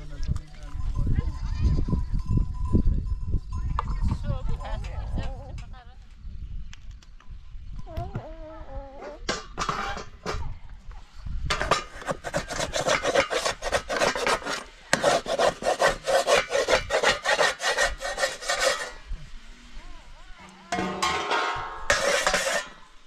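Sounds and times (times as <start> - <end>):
rapid scraping strokes: 11.5 - 19.1, 21.5 - 23.0.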